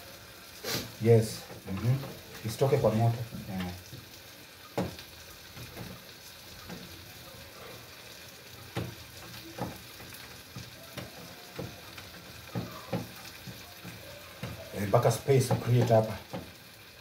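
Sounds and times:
faint hiss: 0:00.0 - 0:04.9.

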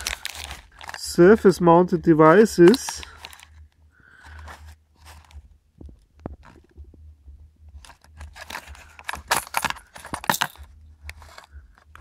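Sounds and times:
low hum: 0:00.0 - 0:12.0
plastic containers clattering: 0:08.2 - 0:11.5.

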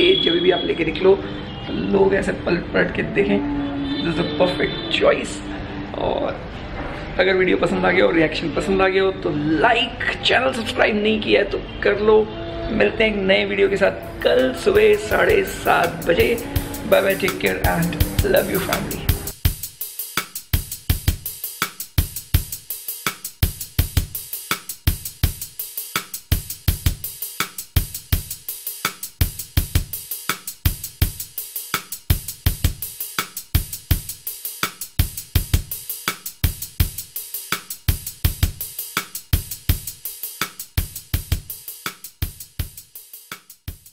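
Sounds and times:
fast drum-kit beat: 0:13.7 - 0:43.9.

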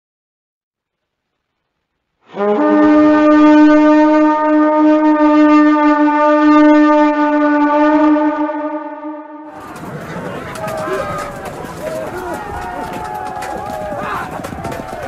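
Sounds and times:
horn blowing long note: 0:02.2 - 0:09.8.

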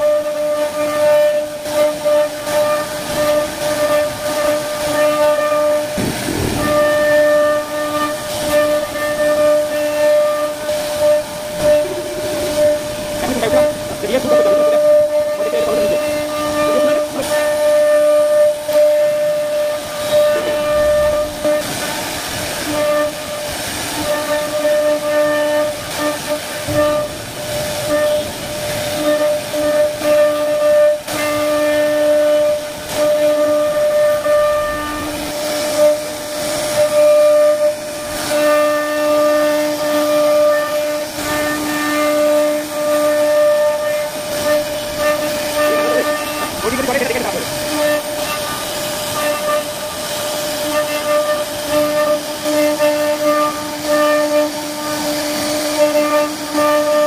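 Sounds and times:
router spindle whining: 0:00.0 - 0:22.0, 0:42.8 - 0:57.0
bit cutting wood hiss: 0:00.1 - 0:57.0
bit cutting into wood: 0:43.9 - 0:48.6.

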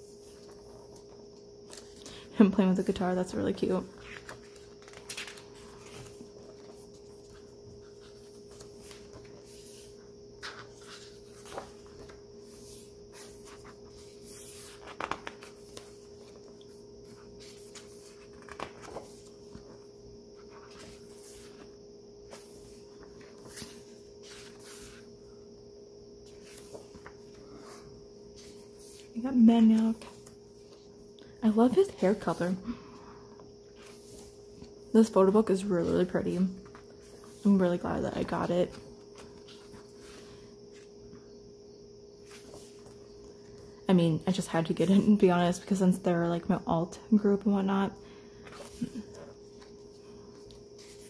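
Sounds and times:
faint steady hum: 0:00.0 - 0:51.0
book pages turning: 0:00.1 - 0:02.1, 0:03.9 - 0:25.1, 0:26.2 - 0:31.0, 0:35.4 - 0:40.9, 0:42.2 - 0:43.6, 0:48.4 - 0:51.0.

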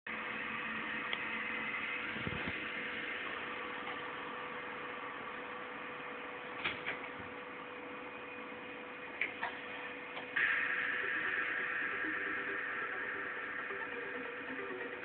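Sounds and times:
faint hum: 0:00.1 - 0:15.0
steady hiss: 0:09.4 - 0:15.0.

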